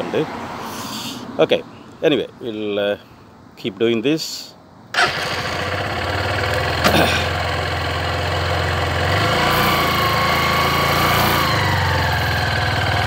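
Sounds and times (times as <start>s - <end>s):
motorcycle engine running: 5.0s - 13.0s.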